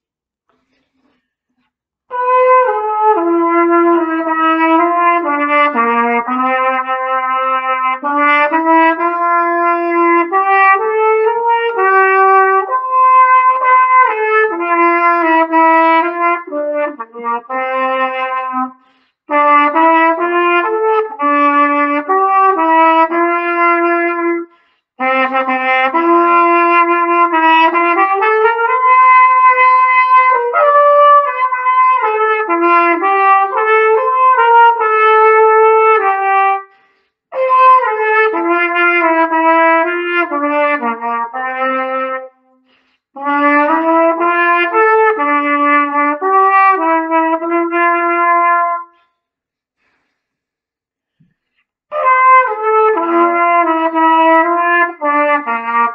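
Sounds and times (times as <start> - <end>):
solo cornet melody: 2.1 - 42.6, 43.2 - 49.0, 51.9 - 55.9
player breathing: 18.8 - 19.3, 24.5 - 25.0, 36.7 - 37.3, 42.6 - 43.2, 48.9 - 51.8.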